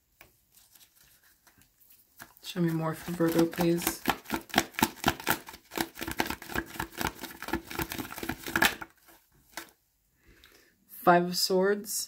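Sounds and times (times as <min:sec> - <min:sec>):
cards being shuffled: 0:00.2 - 0:09.8.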